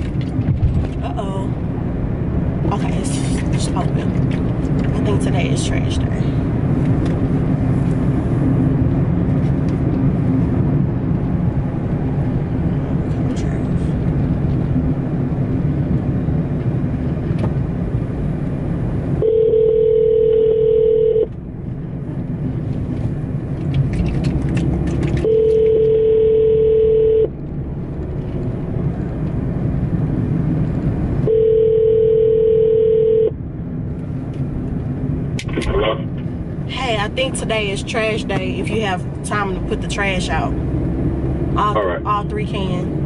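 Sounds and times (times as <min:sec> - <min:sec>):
low rumble of car cabin: 0:00.0 - 0:43.0
telephone ringback tone: 0:19.2 - 0:21.3, 0:25.2 - 0:27.3, 0:31.3 - 0:33.3.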